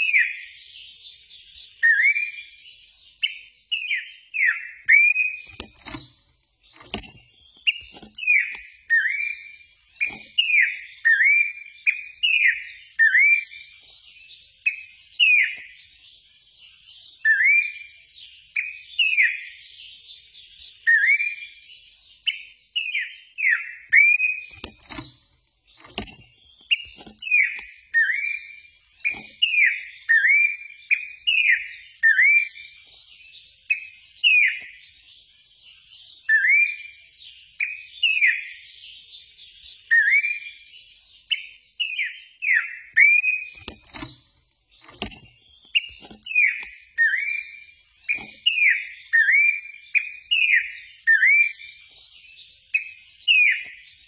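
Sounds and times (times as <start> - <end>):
songbird whistling: 0.0 - 0.6, 1.7 - 2.6, 3.2 - 6.2, 6.8 - 13.8, 14.6 - 15.7, 17.2 - 19.6, 20.8 - 25.2, 25.8 - 32.8, 33.6 - 34.8, 36.2 - 38.6, 39.8 - 44.1, 45.1 - 51.9, 52.7 - 54.0.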